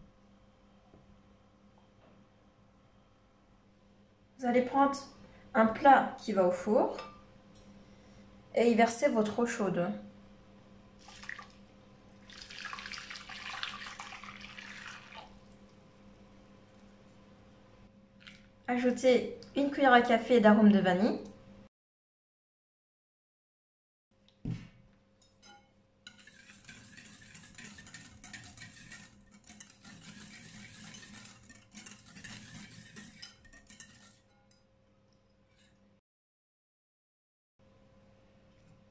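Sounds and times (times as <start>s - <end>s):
water pouring into a glass dish: 11.0s - 17.2s, 18.2s - 18.6s
whisk scraping a glass bowl: 25.3s - 34.6s.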